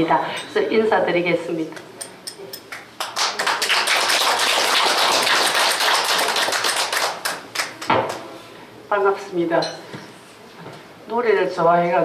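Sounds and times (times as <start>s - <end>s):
crowd applauding: 2.7s - 8.2s.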